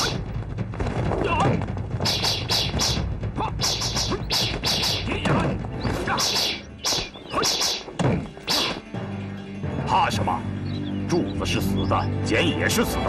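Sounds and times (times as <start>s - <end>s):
weapons whacking and clashing: 2.0s - 8.8s.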